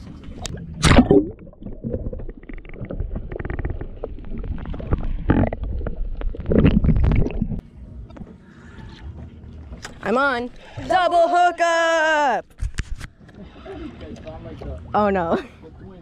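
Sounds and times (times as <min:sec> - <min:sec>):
underwater rumbling and gurgling: 0:00.0 - 0:08.3.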